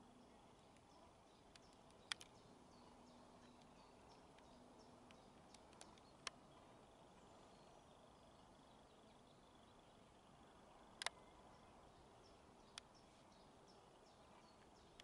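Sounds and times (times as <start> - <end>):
faint background hiss: 0.0 - 15.0
sharp clicks: 0.7 - 2.4, 3.4 - 6.4, 11.0 - 11.2.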